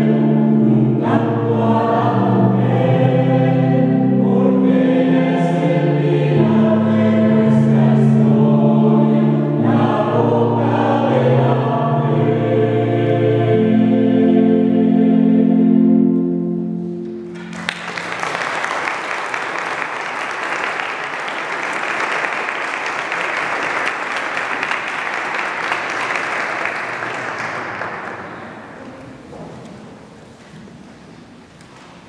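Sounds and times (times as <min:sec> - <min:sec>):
choir holding a chord: 0:00.0 - 0:29.2
audience applauding: 0:17.2 - 0:28.8.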